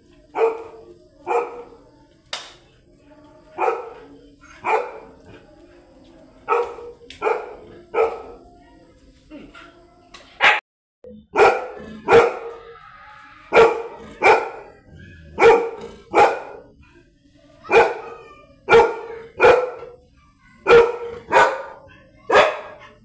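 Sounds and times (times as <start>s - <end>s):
dog barking: 0.3s - 1.8s, 3.6s - 5.4s, 6.4s - 8.4s, 10.4s - 10.6s, 11.3s - 12.7s, 13.5s - 16.8s, 17.6s - 23.0s.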